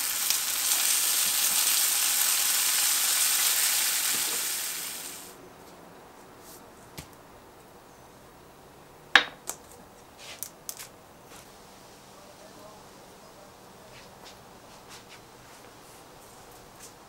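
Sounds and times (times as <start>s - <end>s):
food sizzling in a frying pan: 0.0s - 5.4s.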